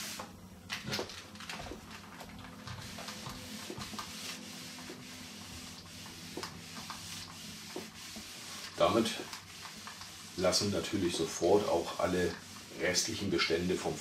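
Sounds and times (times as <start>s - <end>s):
iron rubbing over paper: 2.8s - 14.0s.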